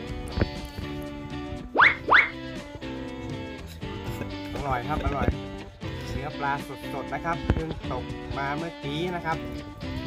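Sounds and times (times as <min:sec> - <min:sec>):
guitar background music: 0:00.0 - 0:10.0
quick rising swoops: 0:01.7 - 0:02.4.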